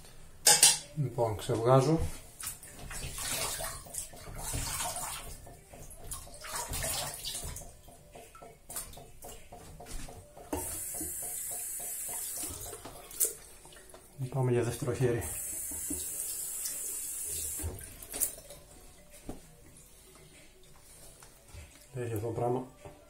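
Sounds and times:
water splashing at sink: 1.4 - 19.7
tap running: 3.8 - 14.1, 15.2 - 18.4.

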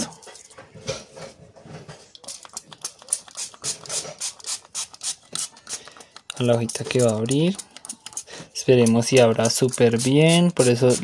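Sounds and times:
spray bottle hissing sprays: 3.0 - 5.8.

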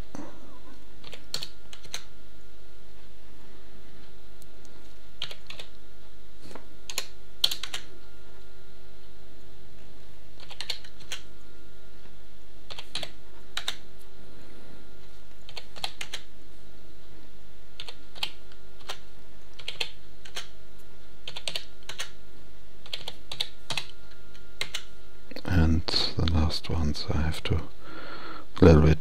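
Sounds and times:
steady electrical hum: 0.0 - 29.0
typing on computer keyboard: 1.0 - 2.1, 5.2 - 5.7, 6.9 - 7.9, 10.4 - 11.2, 12.7 - 13.8, 15.4 - 16.3, 17.8 - 19.0, 19.6 - 20.5, 21.2 - 22.2, 22.8 - 23.9, 24.6 - 24.9.

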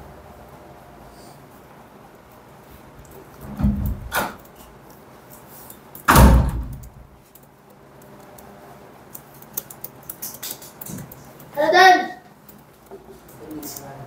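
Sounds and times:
thuds in a room: 6.1 - 6.8.

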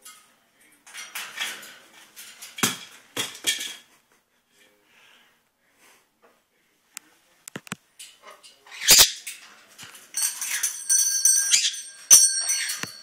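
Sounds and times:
parrot rattling wire cage: 0.8 - 3.5, 8.7 - 13.0.

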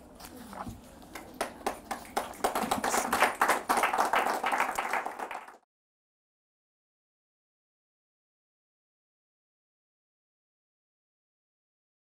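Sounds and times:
audience applauding: 1.4 - 5.7.

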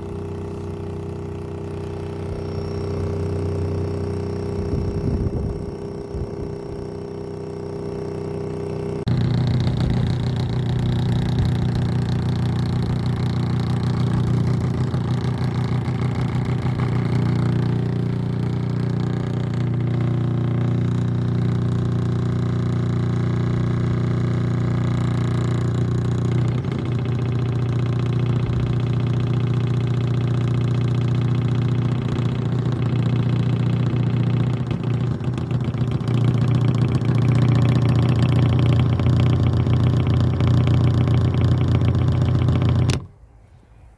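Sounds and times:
low bass test tone hum: 0.0 - 43.3.

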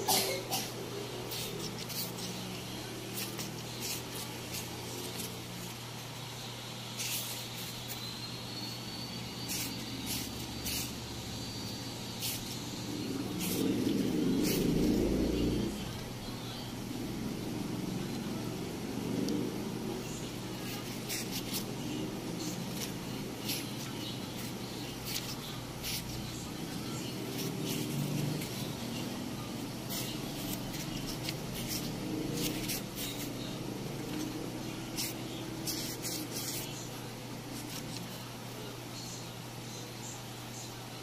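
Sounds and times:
low hum and rumble: 9.2 - 39.2
paper pages turning: 20.6 - 29.1, 29.8 - 38.2.

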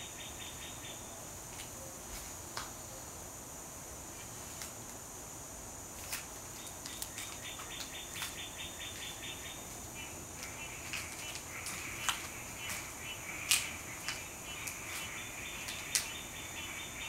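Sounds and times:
crickets trilling: 0.0 - 17.0
short insect chirps: 6.0 - 17.0.

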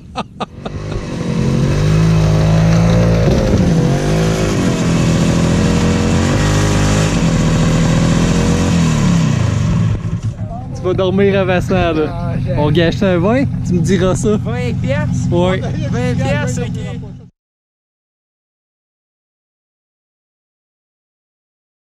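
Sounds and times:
snowmobile engine running: 0.0 - 17.3.

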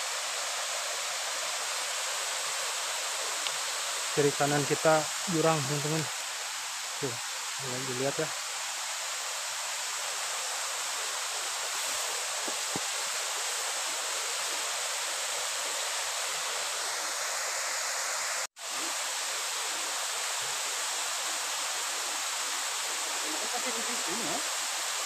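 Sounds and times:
waterfall rushing: 0.0 - 25.0.

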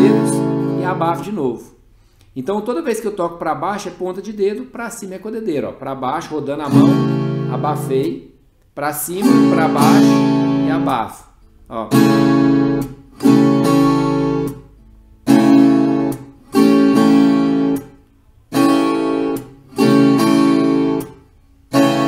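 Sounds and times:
muted guitar chords strummed: 0.0 - 1.6, 6.6 - 8.4, 9.2 - 22.0.

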